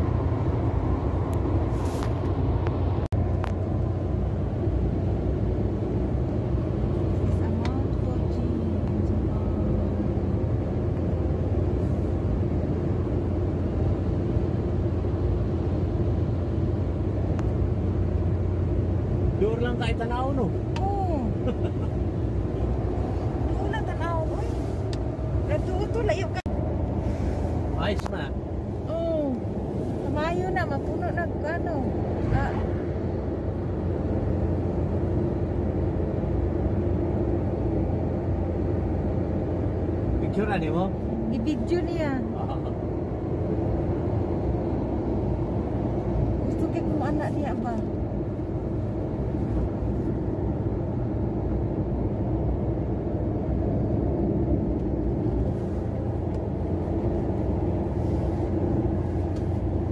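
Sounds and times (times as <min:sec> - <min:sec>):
tyre road noise: 0:00.0 - 0:59.9
vehicle engine rumble: 0:00.0 - 0:59.9.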